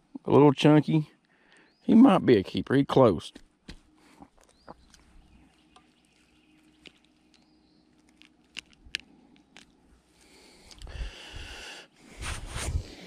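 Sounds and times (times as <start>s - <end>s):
low rumbling microphone noise: 10.8s - 13.0s.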